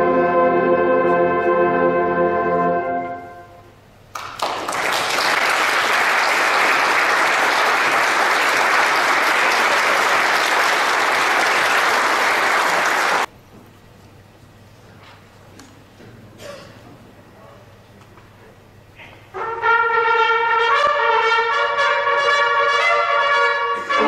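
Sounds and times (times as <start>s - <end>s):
audience applauding: 4.1s - 13.3s.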